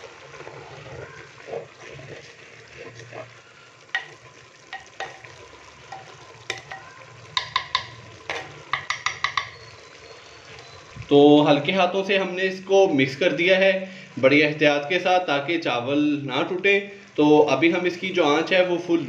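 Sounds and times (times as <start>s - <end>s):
rice being stirred: 0.0s - 11.0s
faint sizzle: 0.0s - 19.0s
spoon clicking against clay pot: 4.0s - 9.7s.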